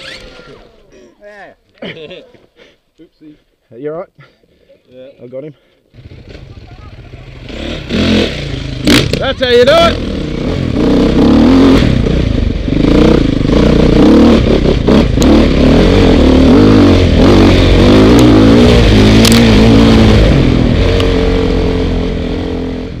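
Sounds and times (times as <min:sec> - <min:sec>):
dirt bike engine revving: 0:00.0 - 0:00.8, 0:05.9 - 0:23.0.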